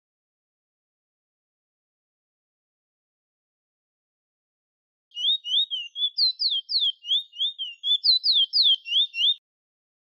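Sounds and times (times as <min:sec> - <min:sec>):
finch singing whistled notes: 0:05.1 - 0:09.4.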